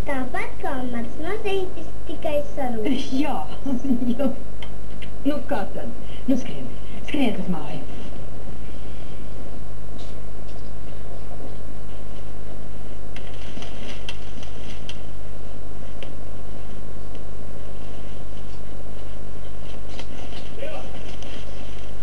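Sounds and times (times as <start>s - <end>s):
low electrical hum with hiss: 0.0s - 22.0s.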